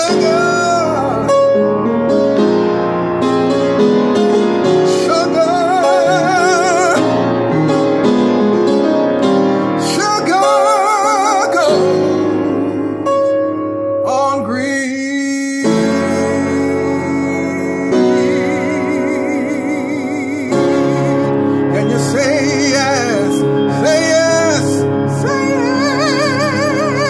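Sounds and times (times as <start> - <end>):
man singing with vibrato: 0.0 - 1.6, 4.7 - 7.5, 9.8 - 27.0
piano accompaniment: 0.0 - 27.0.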